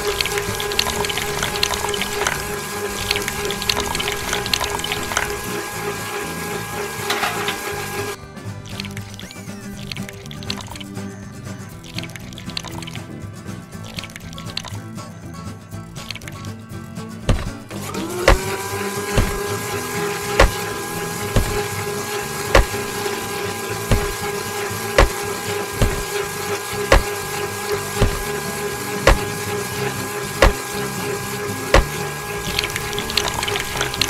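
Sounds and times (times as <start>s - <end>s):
small motor whining: 0.0s - 8.2s, 17.7s - 34.0s
short thump: 17.3s - 17.7s, 19.2s - 19.5s, 20.4s - 20.6s, 21.4s - 21.6s, 22.5s - 22.8s, 23.9s - 24.2s, 25.0s - 25.2s, 25.8s - 26.1s, 28.0s - 28.3s, 29.1s - 29.3s, 30.4s - 30.6s, 31.8s - 32.0s.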